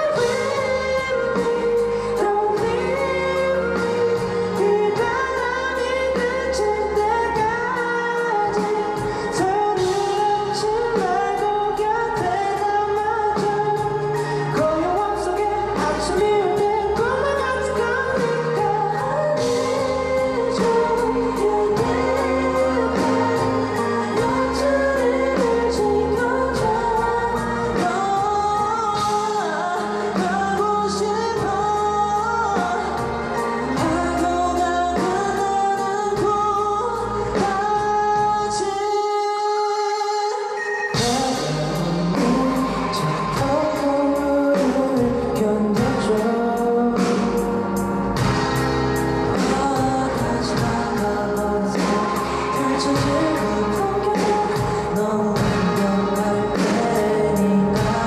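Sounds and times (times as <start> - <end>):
man singing lead vocals: 0.0 - 58.0
pop-rock band: 0.0 - 58.0.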